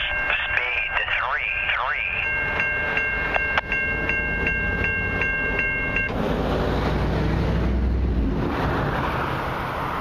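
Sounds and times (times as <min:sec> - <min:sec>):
level crossing bell ringing: 0:00.0 - 0:06.1.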